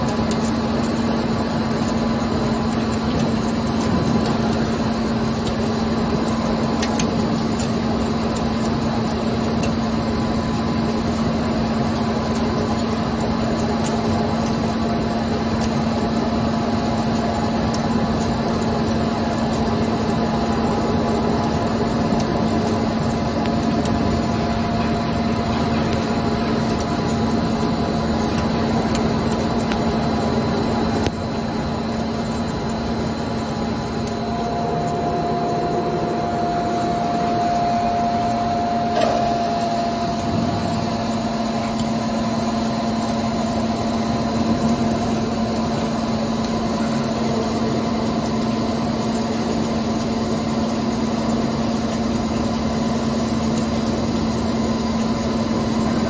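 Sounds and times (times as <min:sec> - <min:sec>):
lathe machine hum: 0:32.6 - 0:42.6.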